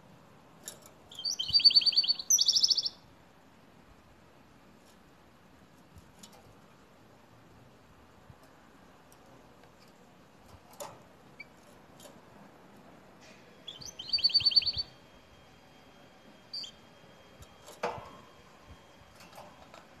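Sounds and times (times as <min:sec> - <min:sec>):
canary trilling: 0:01.1 - 0:03.0, 0:13.6 - 0:15.0, 0:16.5 - 0:16.8.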